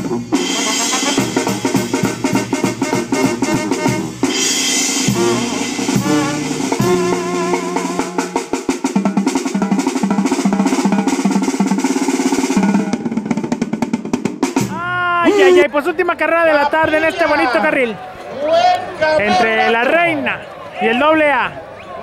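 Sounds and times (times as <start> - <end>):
fast drum beat and rolls: 0.0 - 15.9
wavering melody: 3.0 - 9.3.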